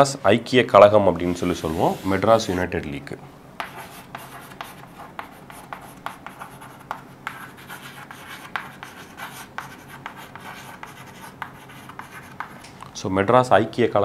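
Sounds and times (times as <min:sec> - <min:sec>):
chalk writing on chalkboard: 0:01.2 - 0:02.7, 0:03.6 - 0:12.6.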